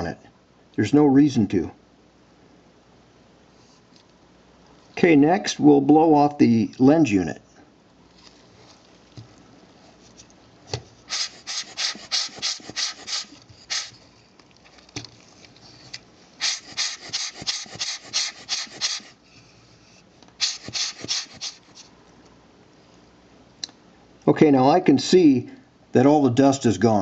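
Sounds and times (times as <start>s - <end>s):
rubber bulb blower puffing air: 10.9s - 14.2s, 15.6s - 21.9s.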